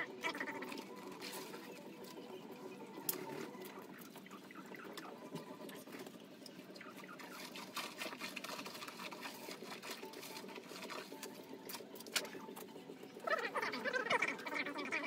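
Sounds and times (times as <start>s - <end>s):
wavering voice-like sound: 0.0s - 5.3s, 13.1s - 15.0s.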